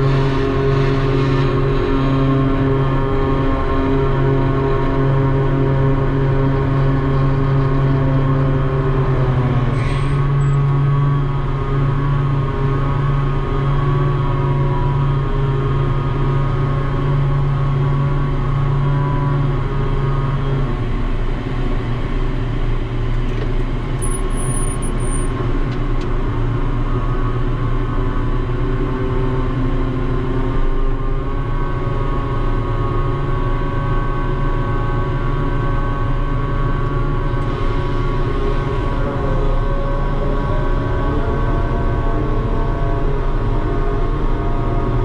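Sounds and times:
crane machinery humming and whining: 0.0 - 45.0.

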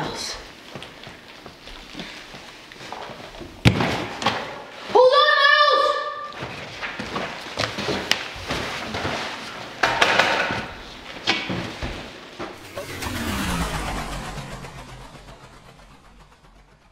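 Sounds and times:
low sound dropping in pitch: 12.6 - 16.9.

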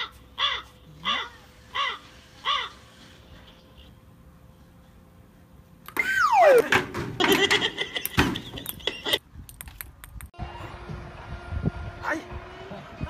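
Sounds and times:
crow-like caws: 0.0 - 3.0.

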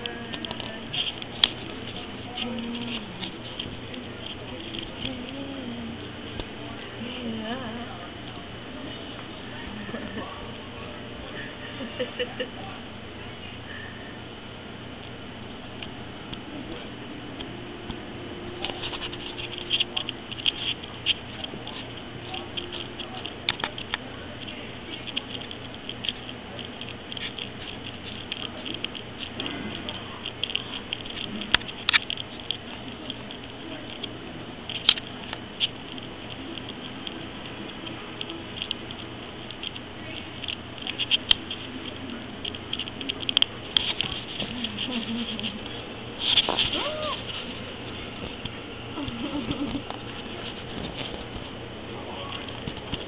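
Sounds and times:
kitten claws scratching strap: 18.6 - 34.0.

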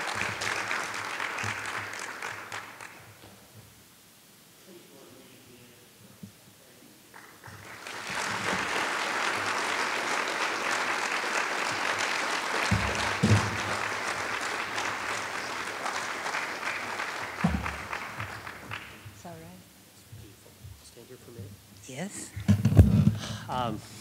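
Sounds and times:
audience applauding: 0.0 - 3.2, 7.1 - 19.3
low thumps: 22.4 - 23.4.

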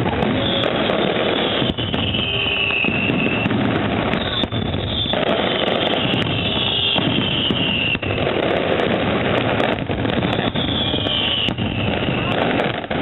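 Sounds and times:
falling firework whistle: 0.0 - 13.0
fireworks crackling and banging: 0.0 - 13.0.

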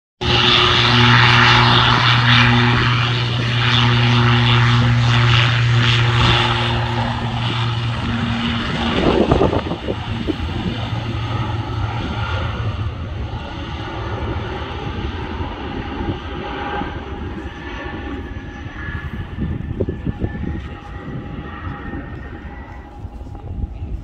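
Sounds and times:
rough buffeting: 0.2 - 17.2
propeller engines droning: 0.2 - 24.0.

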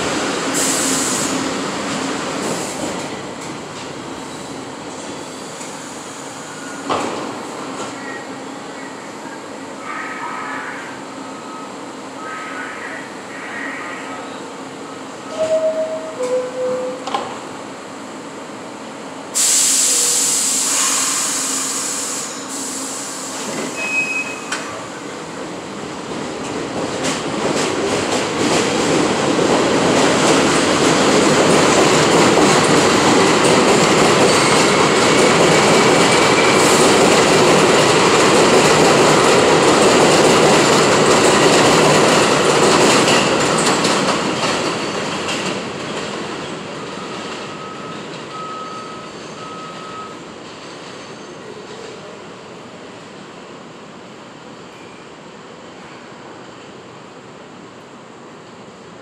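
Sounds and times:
subway train running on rails: 0.0 - 59.0
loud hiss of air: 0.4 - 1.6, 19.3 - 24.0.

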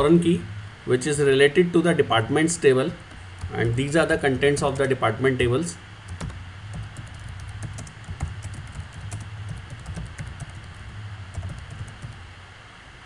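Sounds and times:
low steady hum: 0.0 - 13.0
computer keyboard keys clicking: 6.1 - 12.2.

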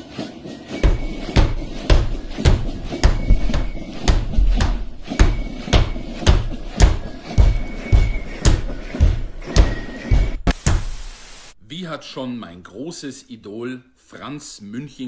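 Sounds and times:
boots marching in step: 0.0 - 10.9.

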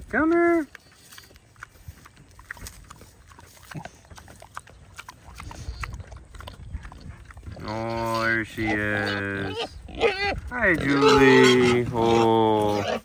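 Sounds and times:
footsteps in dry leaves: 0.0 - 4.4
pig grunting: 1.6 - 13.0.

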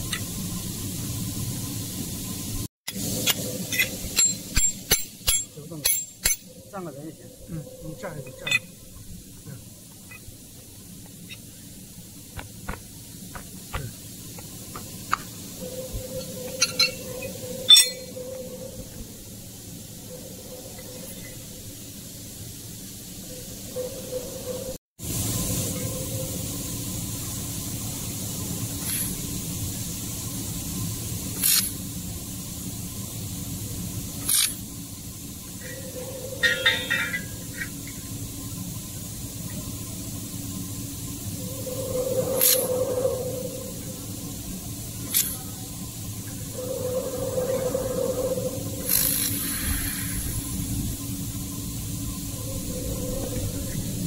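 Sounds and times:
steady hum: 0.0 - 54.0
laser welder hissing bursts: 48.6 - 53.5.

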